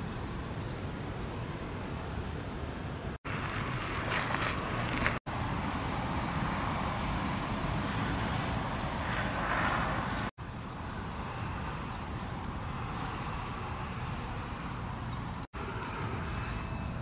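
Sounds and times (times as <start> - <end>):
outdoor background rumble with hiss: 0.0 - 17.0.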